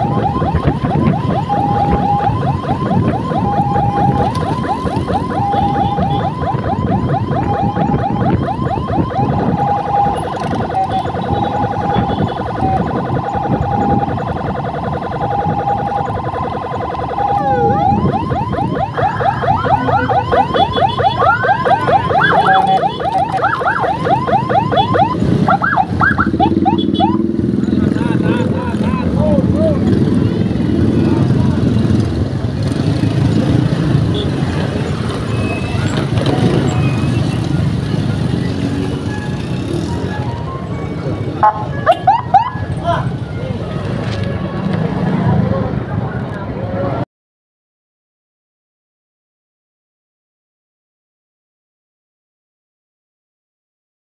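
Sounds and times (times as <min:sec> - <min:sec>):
electronic siren chirps and tone: 0:00.0 - 0:28.0, 0:28.7 - 0:43.9
siren warbling: 0:00.0 - 0:44.7.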